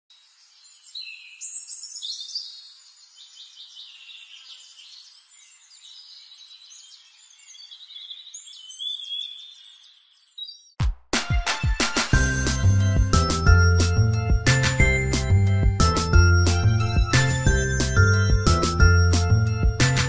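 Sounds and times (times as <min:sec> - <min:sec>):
songbirds chirping and trilling: 0:00.1 - 0:10.8.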